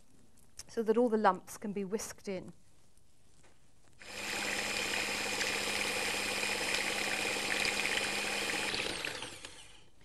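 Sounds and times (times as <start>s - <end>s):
electric whisk motor running: 4.0s - 9.9s.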